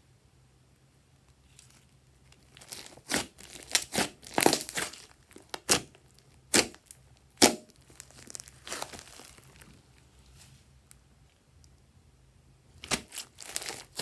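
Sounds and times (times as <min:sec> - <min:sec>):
slime popping and crackling: 0:02.2 - 0:09.8, 0:12.8 - 0:14.0.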